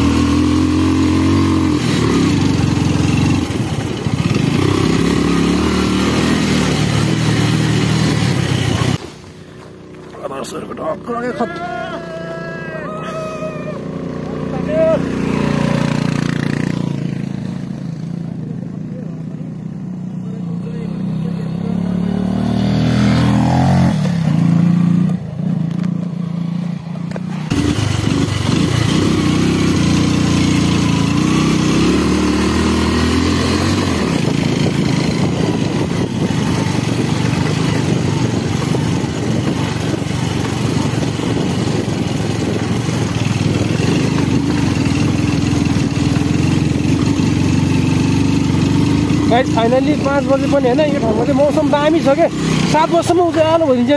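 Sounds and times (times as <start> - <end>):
motorcycle engine heard on board: 0.0 - 53.9
motorcycle passing by: 0.0 - 53.9
road noise: 0.0 - 53.9
wind noise: 32.8 - 46.1.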